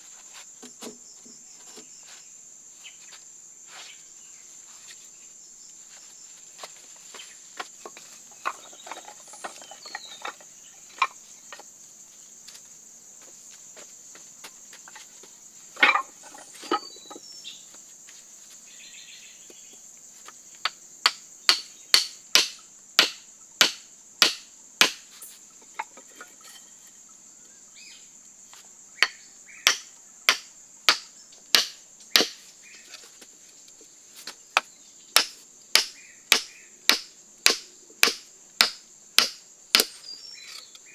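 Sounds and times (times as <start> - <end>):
hammer striking wooden stakes: 15.8 - 16.9, 20.6 - 25.2, 29.0 - 32.4, 34.6 - 40.0.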